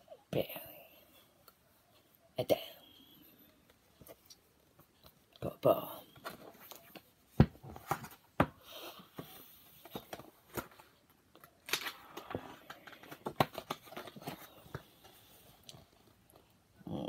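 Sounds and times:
paper rustling: 9.2 - 15.6.

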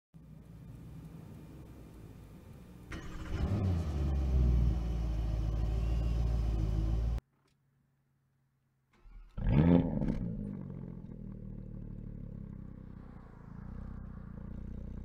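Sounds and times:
diesel engine starting and idling: 2.2 - 7.2, 9.0 - 12.6.

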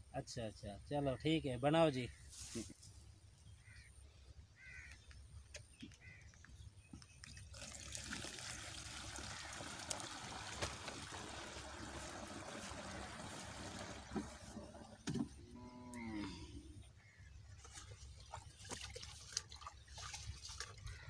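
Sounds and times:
liquid trickling into plastic tank: 7.2 - 15.4, 17.6 - 21.0.

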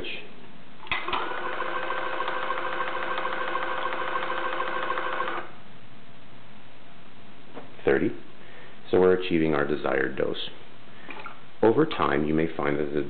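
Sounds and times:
pump motor whine: 0.9 - 5.5.

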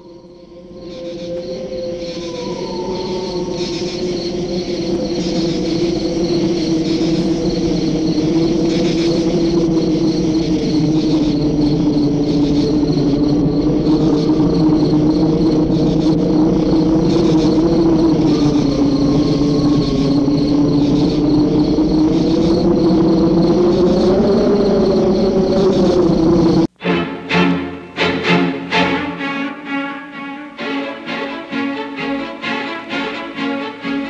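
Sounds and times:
faint pulsing high tone: 0.0 - 26.7
low droning hum: 0.0 - 26.7.

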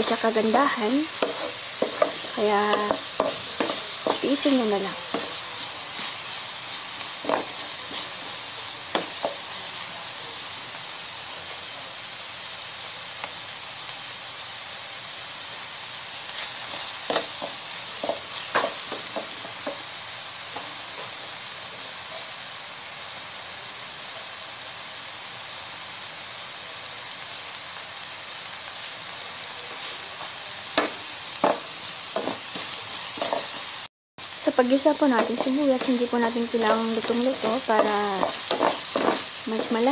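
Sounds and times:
onions sizzling in oil: 0.0 - 39.9
wooden spatula scraping a pan: 0.1 - 6.3, 7.2 - 8.3, 32.2 - 33.7, 35.2 - 39.9.

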